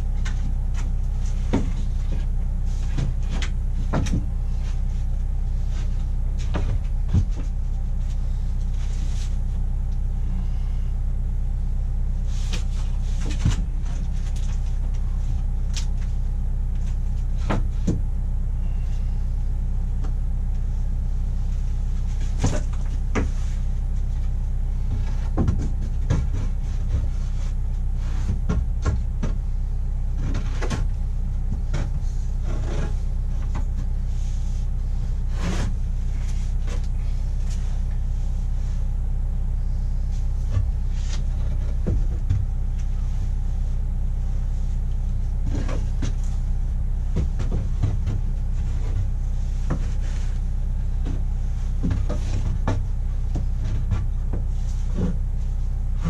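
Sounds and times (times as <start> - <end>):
low machine hum: 0.0 - 56.0
knocks and clicks of handling boards: 0.2 - 2.2, 2.9 - 4.3, 17.4 - 18.1, 22.4 - 23.3, 25.0 - 27.1, 28.3 - 29.4.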